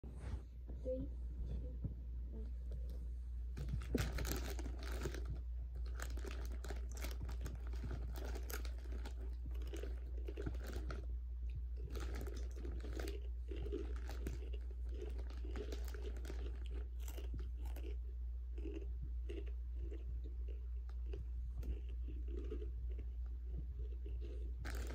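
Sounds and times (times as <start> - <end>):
chip bag crinkling: 3.6 - 11.1, 11.8 - 18.0, 24.0 - 24.9
crunching chips: 3.6 - 11.1, 11.8 - 24.9.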